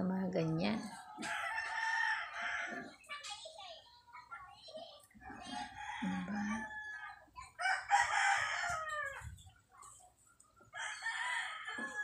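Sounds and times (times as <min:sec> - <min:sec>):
rooster crowing: 0:01.2 - 0:02.9, 0:05.7 - 0:09.3, 0:10.8 - 0:12.0.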